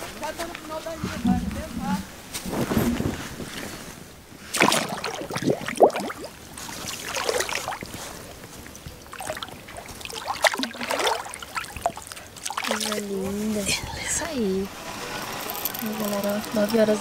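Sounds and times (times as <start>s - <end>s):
water splashing and sloshing: 0.0s - 14.6s.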